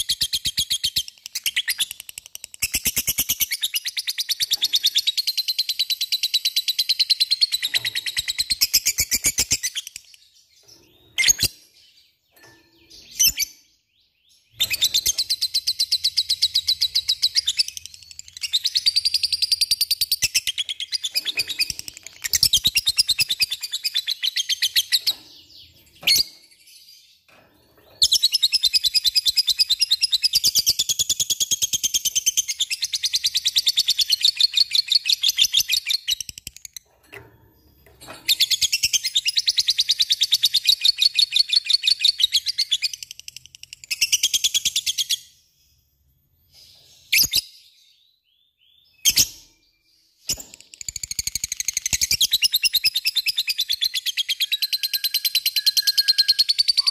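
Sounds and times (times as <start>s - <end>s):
lovebird chattering song: 50.3s - 56.9s.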